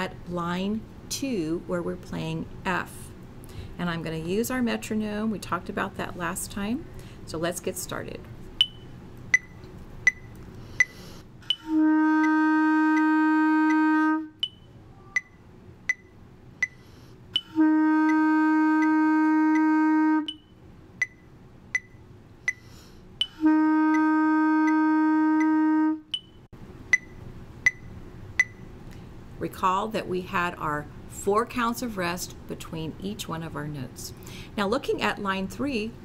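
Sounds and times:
metronome ticking: 8.6s - 16.8s, 17.4s - 28.6s
clarinet long held notes: 11.4s - 15.2s, 17.4s - 20.4s, 23.2s - 26.2s.

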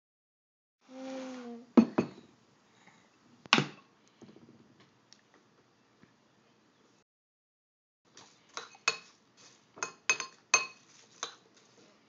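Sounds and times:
spoon clinks and scrapes: 8.5s - 9.2s, 9.8s - 11.7s.

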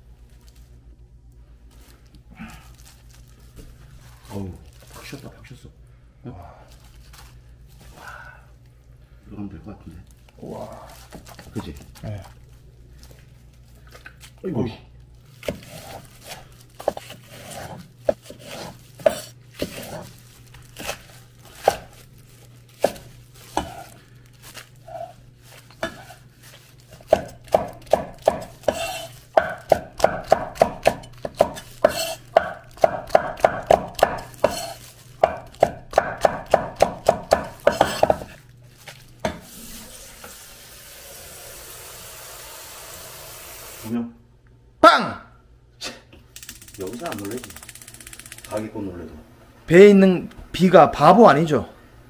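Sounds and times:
knife chopping on wooden board: 15.4s - 20.1s, 20.8s - 22.0s, 22.8s - 23.9s, 25.8s - 26.2s, 26.9s - 38.4s
kitchen tap running: 39.3s - 43.9s.

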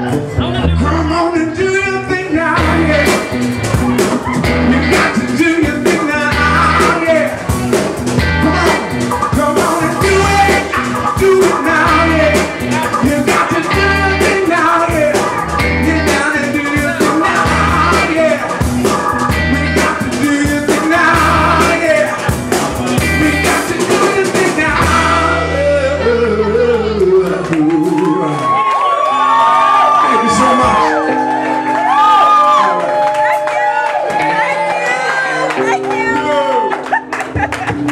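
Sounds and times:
drums: 0.0s - 37.9s
man singing: 0.4s - 28.7s
electric guitar: 1.8s - 37.9s.

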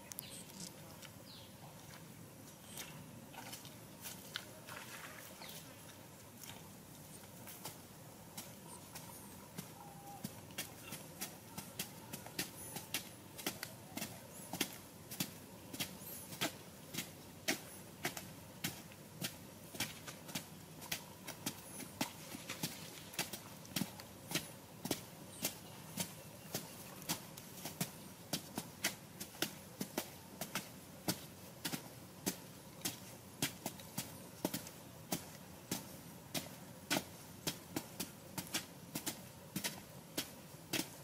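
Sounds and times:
bamboo poles knocking into soil: 9.6s - 41.0s.

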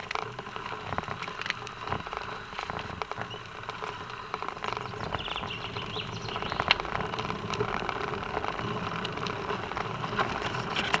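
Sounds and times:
bicycle tyres on asphalt: 0.0s - 11.0s.

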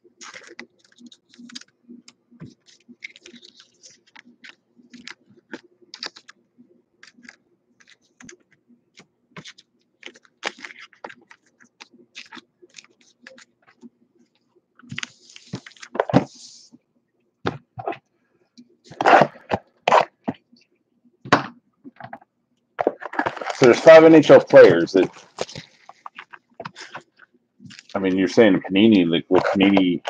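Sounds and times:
card stack handling: 0.2s - 1.7s, 2.4s - 6.4s, 7.0s - 13.8s, 14.8s - 16.4s, 22.8s - 27.1s, 29.3s - 30.0s
cards flipping and sliding: 0.2s - 1.7s, 2.4s - 6.4s, 7.0s - 13.9s, 14.8s - 16.8s, 18.9s - 20.2s, 22.8s - 27.1s, 27.7s - 30.0s.

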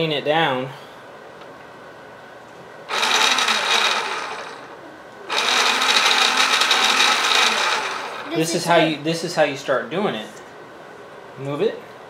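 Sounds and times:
small electric motor whirring: 2.9s - 4.7s, 5.3s - 8.5s.

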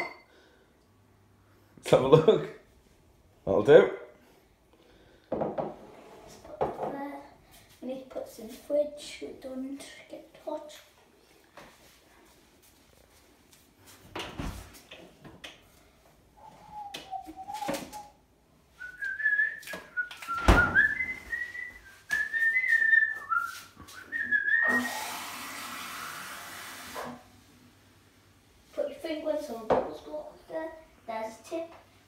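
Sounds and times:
person whistling a tune: 16.4s - 18.2s, 18.8s - 25.0s
water rushing from tap: 24.6s - 27.2s.

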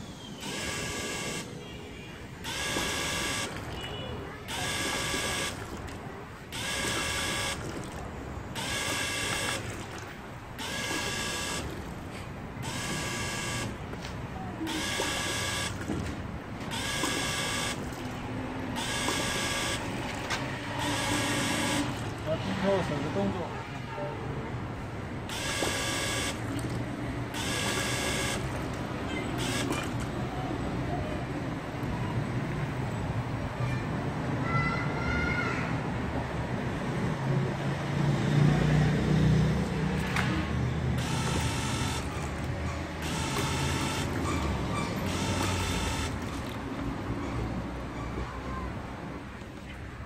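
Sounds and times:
electric pump whining: 0.0s - 1.6s, 2.2s - 13.9s, 14.6s - 22.8s, 25.2s - 30.2s, 40.8s - 46.8s.

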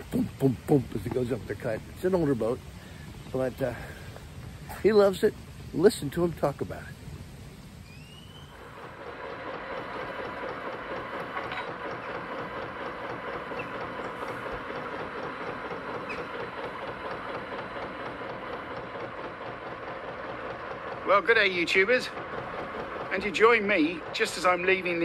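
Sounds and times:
diesel boat engine chugging: 8.5s - 25.0s.

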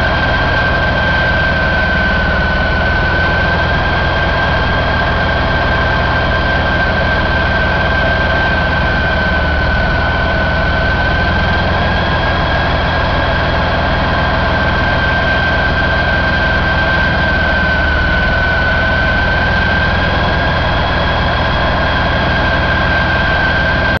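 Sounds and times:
diesel engine idling: 0.0s - 24.0s
high whine: 0.0s - 24.0s.

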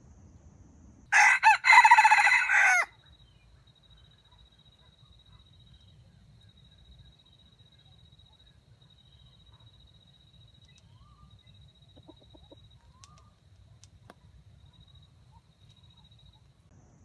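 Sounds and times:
rooster crowing: 1.1s - 3.0s.

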